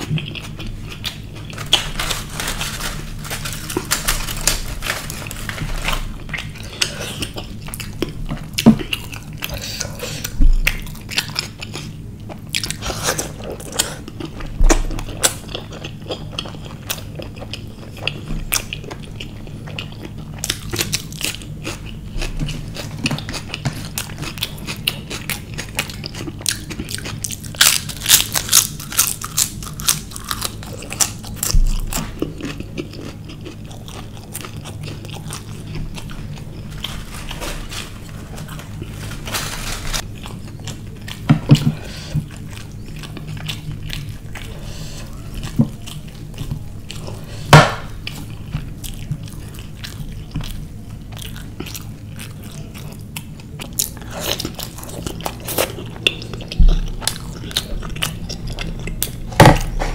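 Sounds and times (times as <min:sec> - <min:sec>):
chewing with wet mouth sounds: 0:00.0 - 0:02.2, 0:02.8 - 0:39.1, 0:40.0 - 0:59.9
loud crisp crunches: 0:00.4 - 0:07.4, 0:35.0 - 0:40.1.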